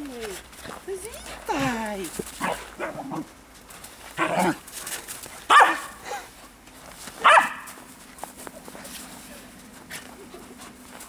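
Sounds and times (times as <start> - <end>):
dog barking: 5.5 - 6.0, 7.2 - 7.8.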